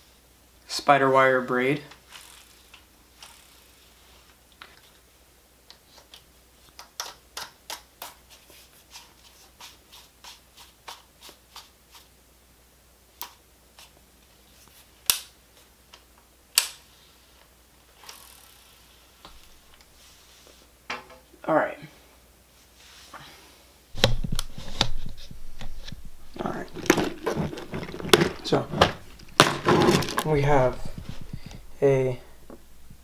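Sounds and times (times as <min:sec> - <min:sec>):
fishing reel clicks: 0:02.1 - 0:03.7, 0:18.0 - 0:18.6.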